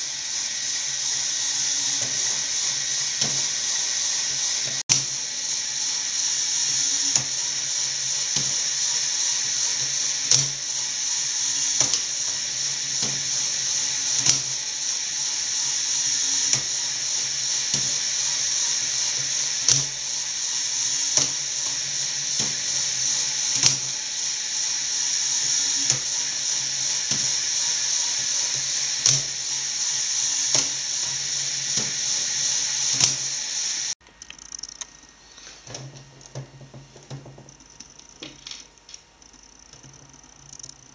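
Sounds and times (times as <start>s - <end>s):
motor and gears whirring: 0.0s - 40.9s
mechanism clacking: 34.0s - 35.0s, 37.5s - 40.9s.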